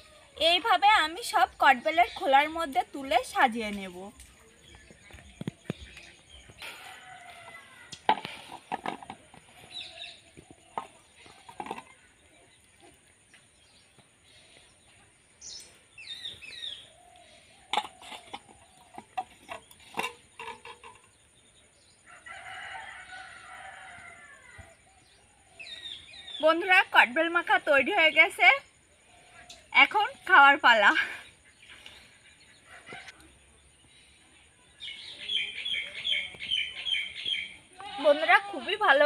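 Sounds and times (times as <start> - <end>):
clicks and knocks of shells and bowl: 17.7 - 21.2
rooster crowing: 22.1 - 24.8.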